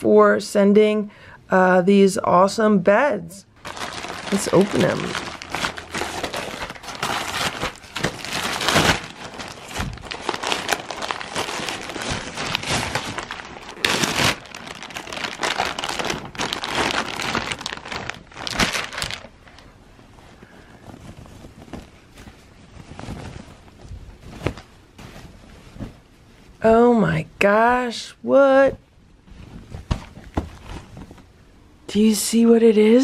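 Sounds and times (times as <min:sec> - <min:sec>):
plastic packaging crinkling: 0:03.6 - 0:26.0.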